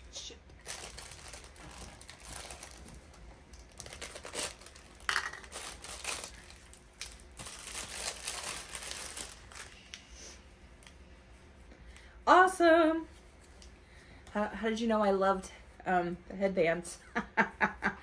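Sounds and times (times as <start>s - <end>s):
packaging rustling and crackling: 0.6s - 9.8s.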